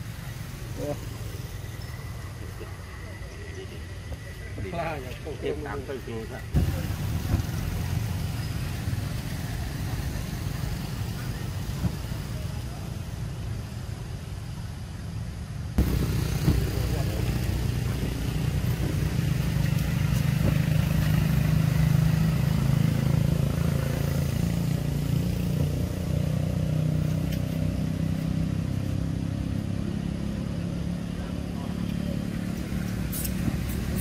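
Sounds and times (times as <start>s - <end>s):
vehicle engine rumbling: 0.0s - 34.0s.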